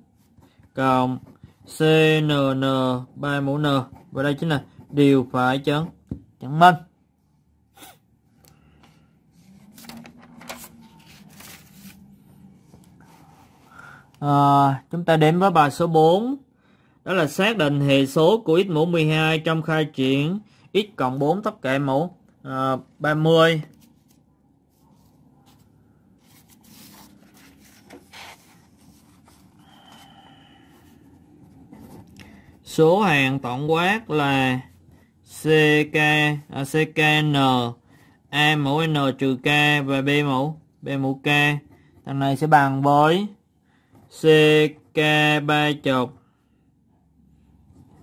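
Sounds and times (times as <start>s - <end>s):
soft paper scrapes: 8.6s - 14.0s, 23.6s - 32.8s
paper rustling and sliding: 9.4s - 13.7s, 23.7s - 32.4s.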